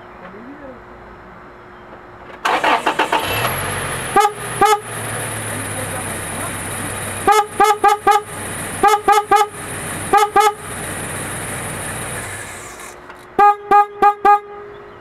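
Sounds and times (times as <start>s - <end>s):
car horn tooting: 4.1s - 5.0s, 7.2s - 10.7s, 13.4s - 14.8s.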